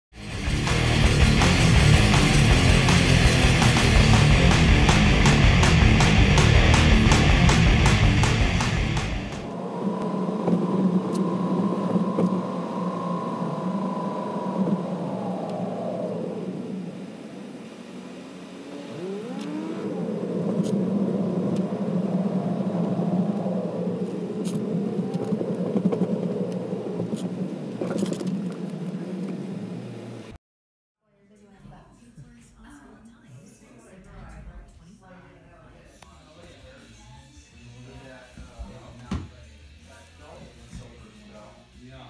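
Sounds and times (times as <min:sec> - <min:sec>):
hard rock music: 0:00.2 - 0:09.5
car engine accelerating: 0:00.2 - 0:28.0.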